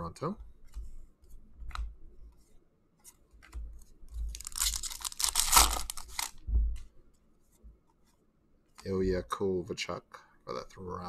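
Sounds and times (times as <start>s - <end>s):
light taps of cards handled: 0.4s - 4.4s
foil wrapper tearing and crinkling: 4.3s - 6.4s.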